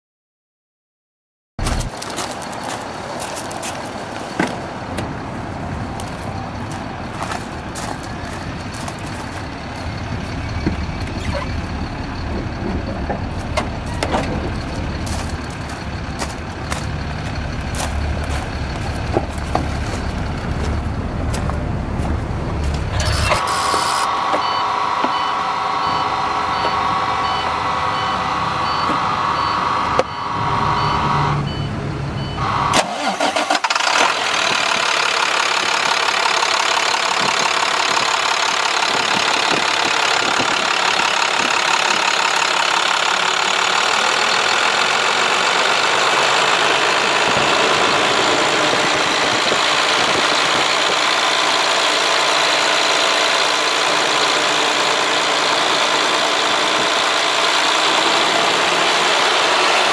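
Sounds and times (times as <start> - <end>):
steady high whine: 20.0 - 31.4
on-off beeping: 22.9 - 33.4.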